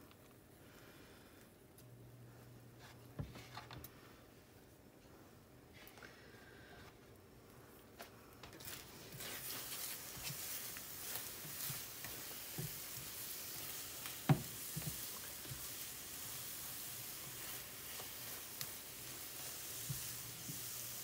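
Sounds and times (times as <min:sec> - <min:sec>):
eggs sizzling in a skillet: 0:08.6 - 0:21.0
spatula scraping a pan: 0:08.6 - 0:21.0.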